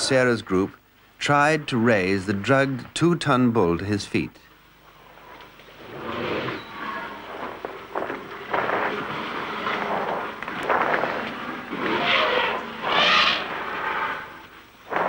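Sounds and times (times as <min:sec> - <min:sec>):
elephants making harsh noisy bursts: 0:05.8 - 0:15.0.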